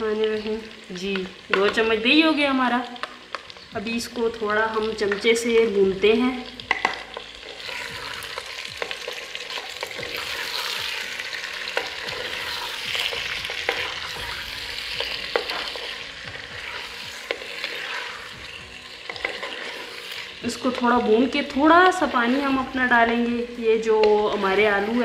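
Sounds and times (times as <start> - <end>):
potatoes sizzling in hot oil: 0.0 - 25.0
wooden spoon scraping a pot: 6.7 - 20.8.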